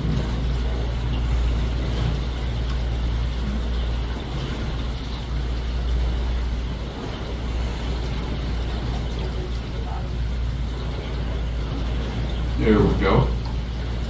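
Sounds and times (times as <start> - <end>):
boat engine droning: 0.0 - 14.0
water washing against hull: 0.0 - 14.0.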